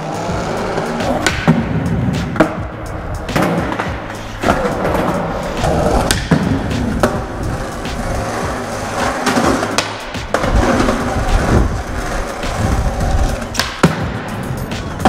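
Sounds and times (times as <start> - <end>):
skateboard wheels rolling on concrete: 0.0 - 15.0
skateboard knocking on ground: 3.3 - 14.2.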